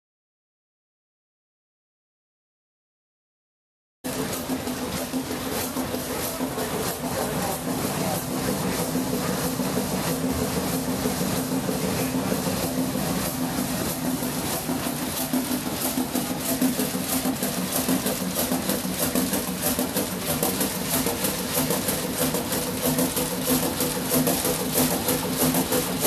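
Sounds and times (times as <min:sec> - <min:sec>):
diesel engine running: 0:04.1 - 0:26.0.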